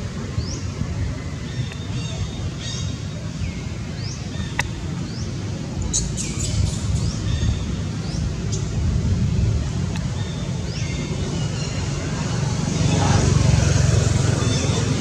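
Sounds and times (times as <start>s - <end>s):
steady low rumble: 0.0s - 15.0s
small birds chirping: 0.2s - 8.9s.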